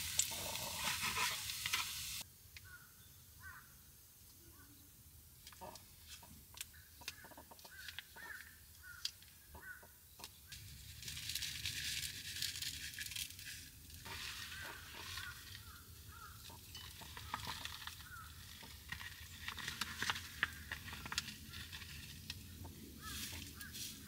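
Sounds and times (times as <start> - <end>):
bird calls: 2.6 - 3.8, 5.6 - 10.6, 14.0 - 19.0, 22.4 - 24.0
plastic packets rustling: 10.6 - 24.0.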